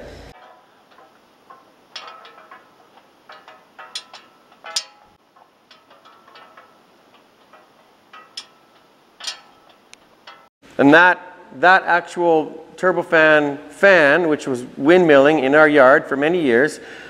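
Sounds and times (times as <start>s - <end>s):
fan blades ticking and clinking: 0.3s - 10.6s.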